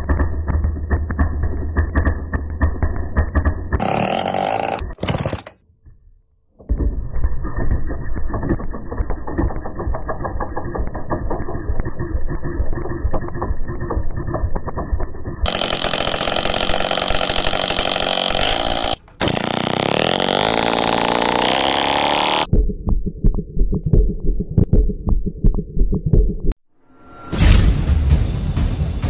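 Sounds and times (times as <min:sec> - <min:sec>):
moped engine running: 0:15.4 - 0:22.5.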